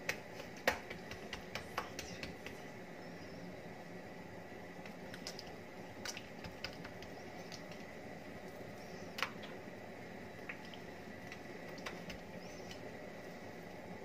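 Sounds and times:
hands patting dough: 0.0s - 2.7s, 4.9s - 7.9s, 11.3s - 12.8s.

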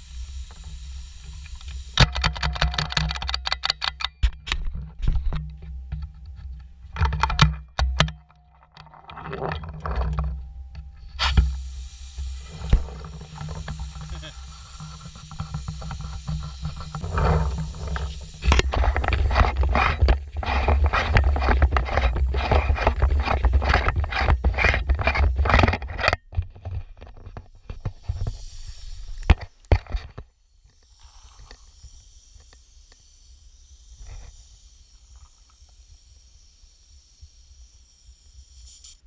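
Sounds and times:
scraping on camera microphone: 8.7s - 10.4s, 12.4s - 28.5s
faint hiss: 10.7s - 19.4s, 27.7s - 39.0s.

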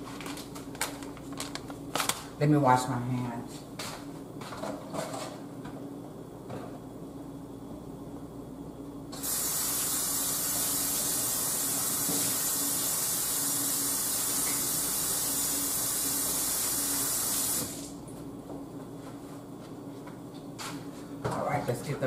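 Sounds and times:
faucet running: 9.2s - 18.0s.

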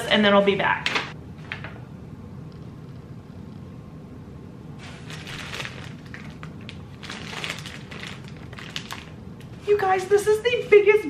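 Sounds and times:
low steady hum: 0.0s - 11.0s
snack packaging crinkling: 4.8s - 9.6s.

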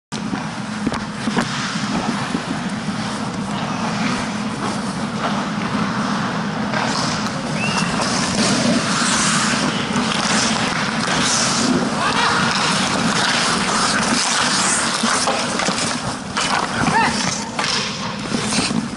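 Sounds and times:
steady low hum: 0.1s - 18.9s
skate blades scraping ice: 0.2s - 18.9s.

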